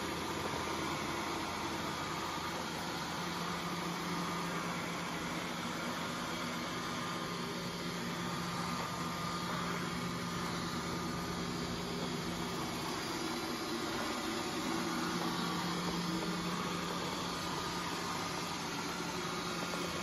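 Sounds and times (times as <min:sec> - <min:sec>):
robot vacuum whirring: 0:00.0 - 0:20.0.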